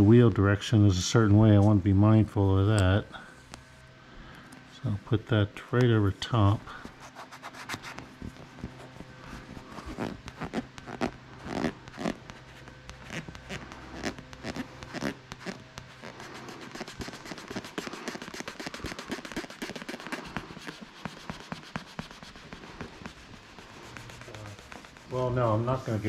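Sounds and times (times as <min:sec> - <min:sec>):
wooden stick scraping rubber: 0:06.0 - 0:26.0.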